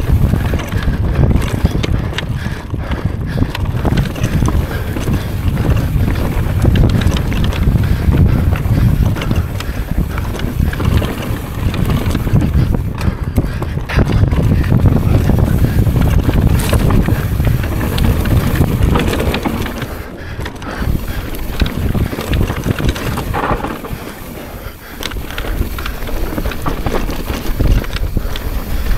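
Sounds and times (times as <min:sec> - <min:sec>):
bike knocks and rattles: 0:00.0 - 0:28.9
tyres rumbling on trail: 0:00.0 - 0:28.9
wind rushing over microphone: 0:00.0 - 0:28.9.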